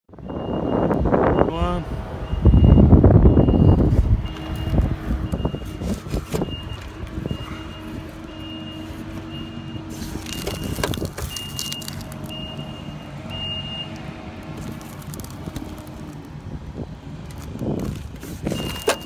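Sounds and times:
low engine hum: 0.1 - 19.0
reversing alarm beeping: 0.2 - 5.8, 6.4 - 13.9, 18.5 - 19.0
handling knocks and rustles: 5.6 - 9.3, 9.9 - 12.3, 17.3 - 19.0.

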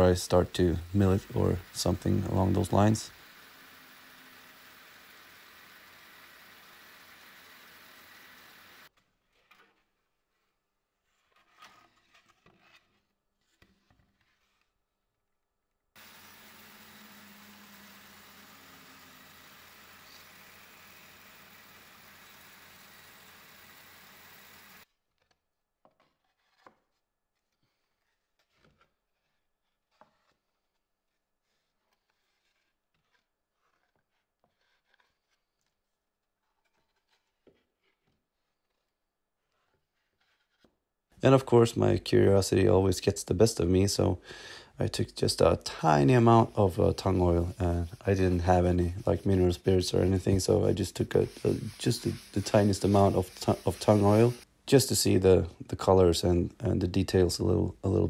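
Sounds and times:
wood slab scraping: 46.0 - 54.5.

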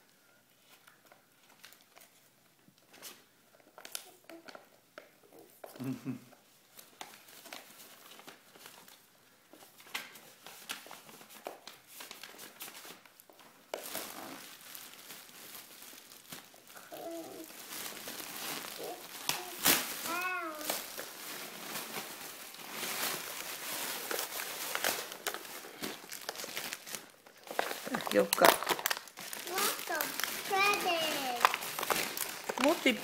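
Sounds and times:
plastic bag crinkling: 6.7 - 33.0.

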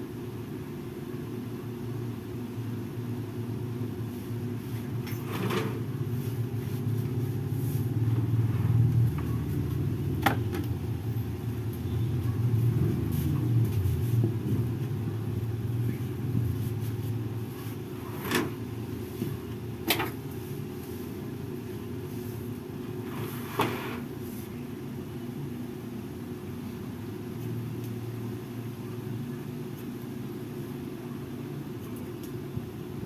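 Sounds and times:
low steady rumble: 0.0 - 23.5.

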